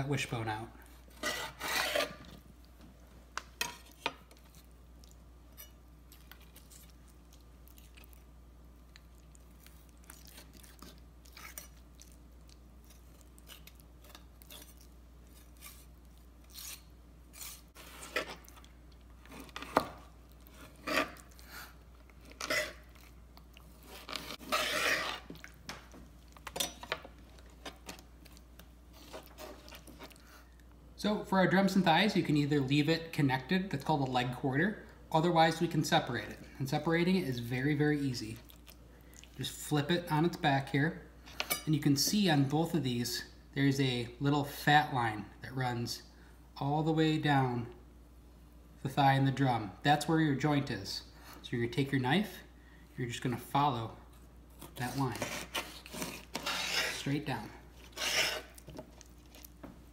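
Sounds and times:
knife crunching through bone: 9.6s - 25.7s, 54.6s - 57.2s, 57.8s - 59.6s.

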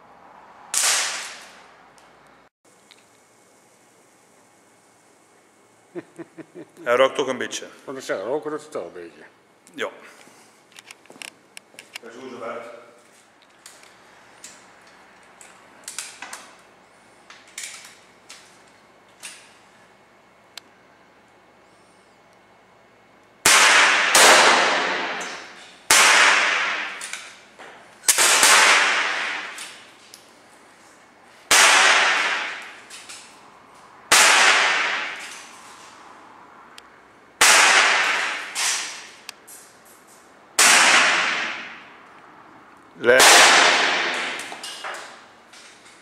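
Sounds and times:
air rifle shots echoing: 0.7s - 1.5s, 23.4s - 27.2s, 28.0s - 29.9s, 31.5s - 32.9s, 34.1s - 35.6s, 37.4s - 39.2s, 40.6s - 41.9s, 43.1s - 44.6s.

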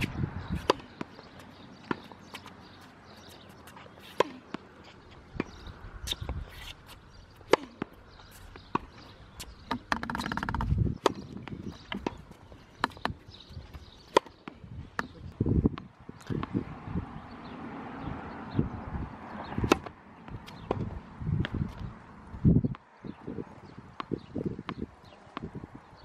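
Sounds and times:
tennis ball hit and bouncing: 0.0s - 16.6s, 19.5s - 21.8s, 24.0s - 25.6s.

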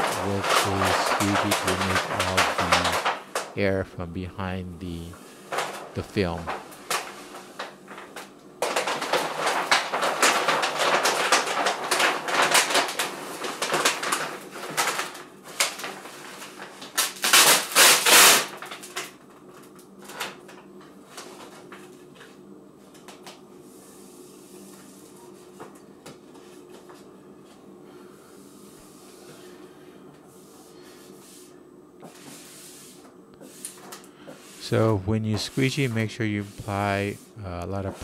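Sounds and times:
plastic film crinkling: 0.0s - 3.5s, 5.5s - 19.1s
faint steady hum: 0.0s - 8.8s, 16.8s - 38.0s.

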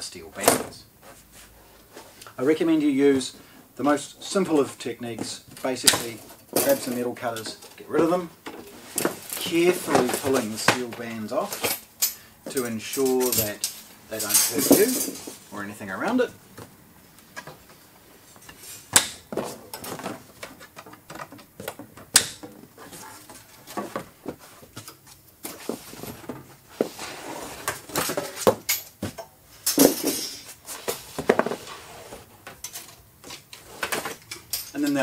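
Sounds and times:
steel bands rattling on cardboard: 12.9s - 15.3s.

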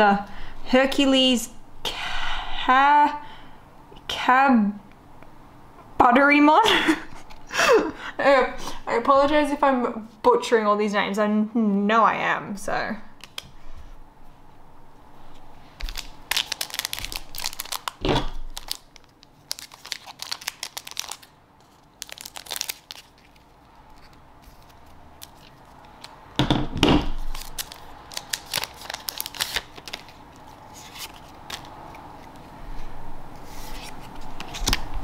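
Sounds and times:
foil wrapper crinkling: 15.7s - 26.2s, 27.1s - 32.4s.

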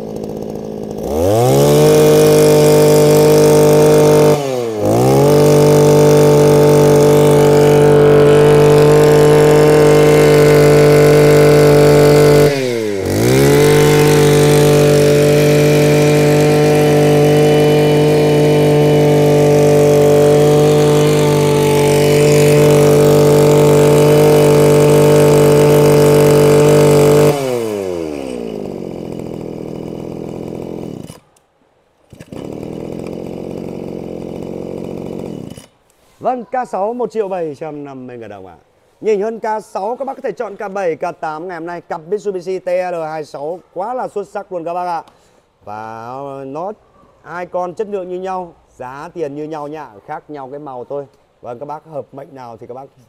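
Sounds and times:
brush cutter engine revving: 0.0s - 31.4s, 32.0s - 36.1s.

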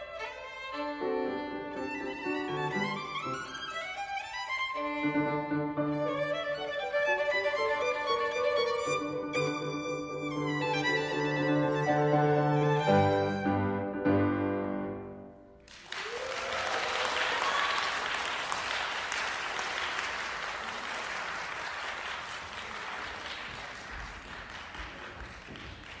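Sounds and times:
violin and piano chords: 0.0s - 15.4s
audience applause: 15.6s - 26.0s.

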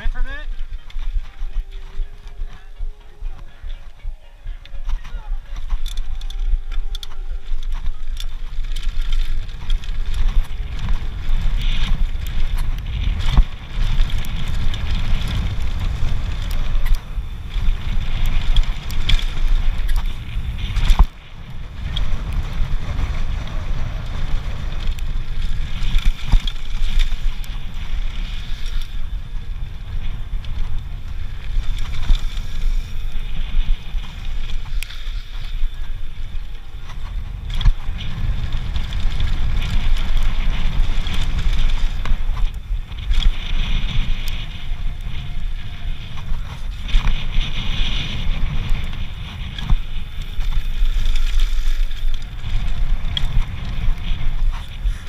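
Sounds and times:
bike rattling over ground: 0.0s - 55.0s
wind rushing over microphone: 0.0s - 55.0s.

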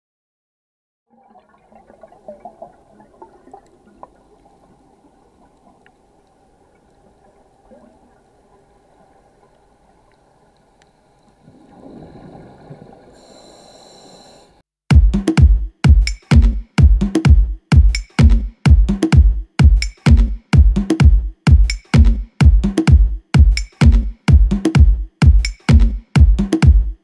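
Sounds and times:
gurgling bubbles: 1.1s - 9.4s, 11.4s - 13.4s
underwater clicks and crackling: 1.8s - 13.1s.

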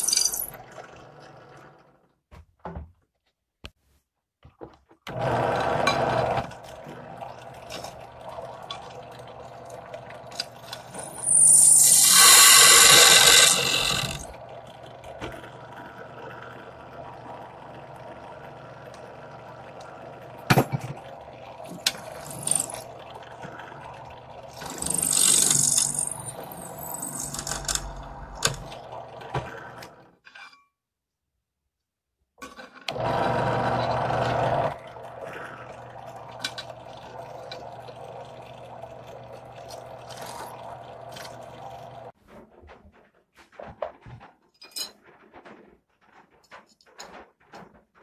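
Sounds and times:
drill press cutting steel: 0.0s - 0.8s, 5.1s - 6.6s, 10.4s - 14.4s, 21.7s - 22.9s, 24.5s - 28.8s.

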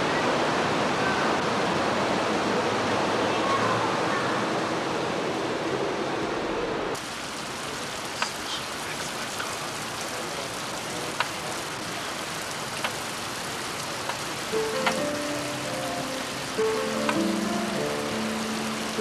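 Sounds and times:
heavy rain hissing: 0.0s - 19.0s
raindrops tapping nearby: 7.0s - 19.0s.

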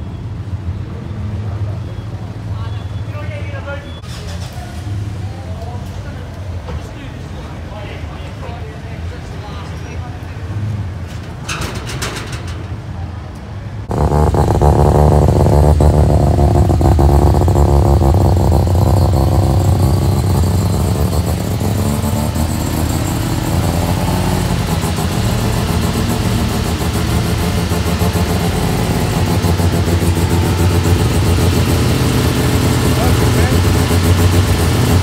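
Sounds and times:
car engine idling: 13.8s - 35.0s.

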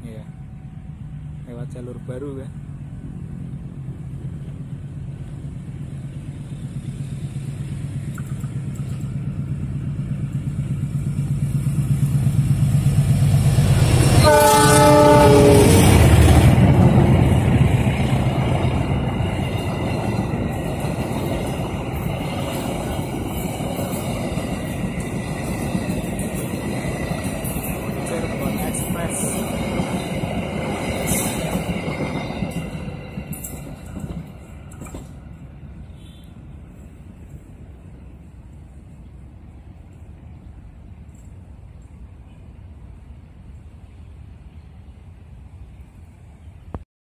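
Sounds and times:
locomotive engine drone: 0.0s - 46.8s
clatter of wheels on rail: 4.4s - 36.3s
train horn: 14.1s - 16.2s, 35.8s - 36.4s.

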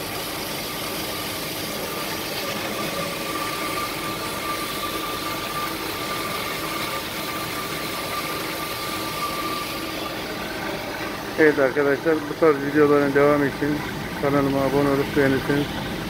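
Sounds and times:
band saw cutting metal pipe: 1.8s - 10.2s.

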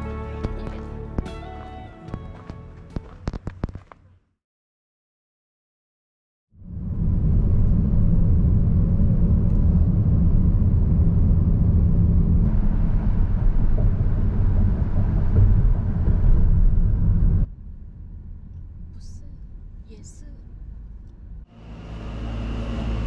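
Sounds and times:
car cabin road rumble: 6.8s - 23.0s.

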